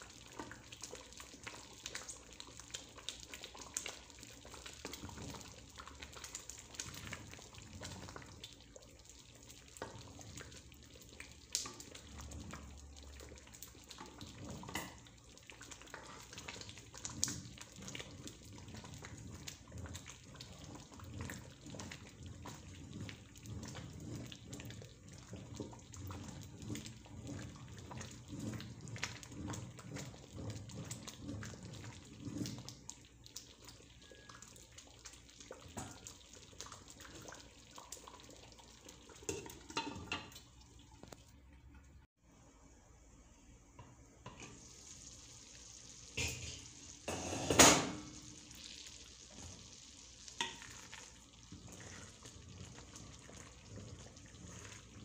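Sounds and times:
wooden spoon stirring wet rice: 0.0 - 41.2, 48.6 - 55.0.

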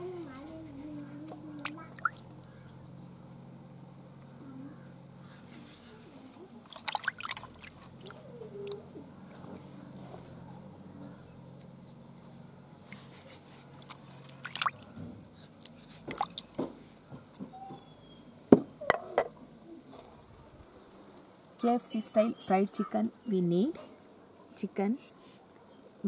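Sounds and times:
water splashing in a basin: 1.6 - 2.6, 6.6 - 8.8, 13.7 - 15.4, 16.0 - 17.4.

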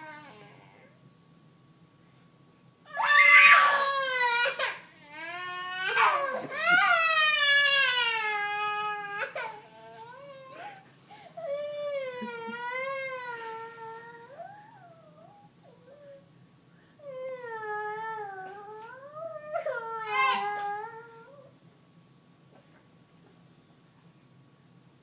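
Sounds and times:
small child wailing: 2.9 - 10.8, 17.0 - 21.5.

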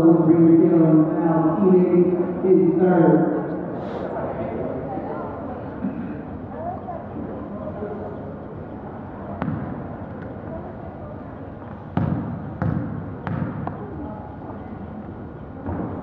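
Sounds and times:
murmur of voices: 0.0 - 16.0
basketball bouncing on gym floor: 9.4 - 9.8, 12.0 - 13.8.

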